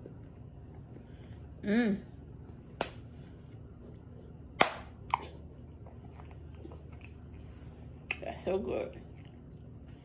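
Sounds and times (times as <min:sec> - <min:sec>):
sharp hand claps: 0:04.6 - 0:04.9.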